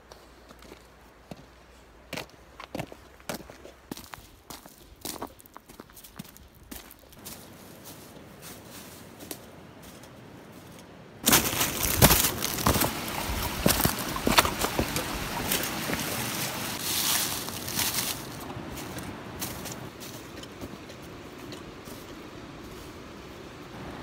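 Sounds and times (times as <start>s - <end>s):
faint outdoor background: 0.0s - 24.0s
stream splashing over rocks: 11.2s - 21.1s.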